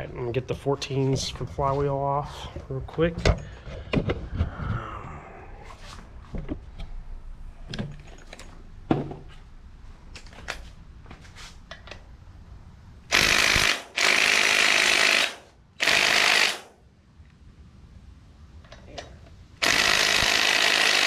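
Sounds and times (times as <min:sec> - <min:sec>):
impact wrench hammering: 0:13.1 - 0:16.7, 0:19.6 - 0:21.0.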